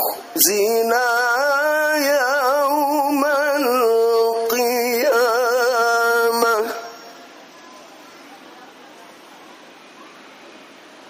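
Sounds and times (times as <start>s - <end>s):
man chanting through microphone: 0.0s - 7.1s.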